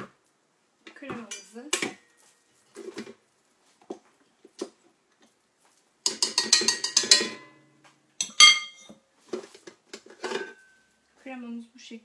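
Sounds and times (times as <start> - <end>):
wire whisk tapping metal bowl: 6.1 - 7.5.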